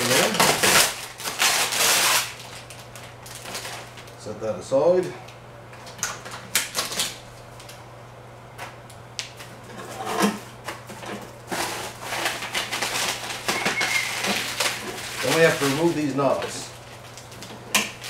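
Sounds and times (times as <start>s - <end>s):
plastic wrap crinkling: 0.0s - 4.2s, 11.2s - 18.0s.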